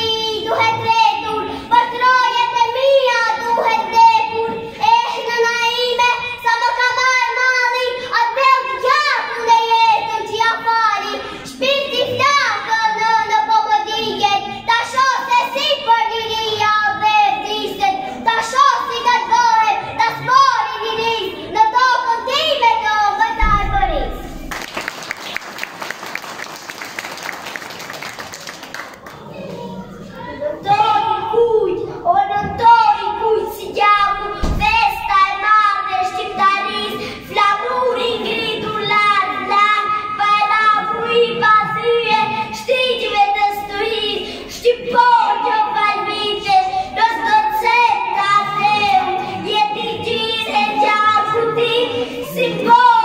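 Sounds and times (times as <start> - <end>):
audience applauding: 24.5 - 29.2.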